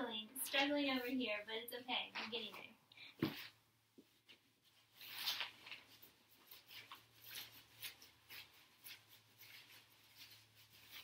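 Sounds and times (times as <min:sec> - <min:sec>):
tent fabric rustling: 0:04.5 - 0:11.0.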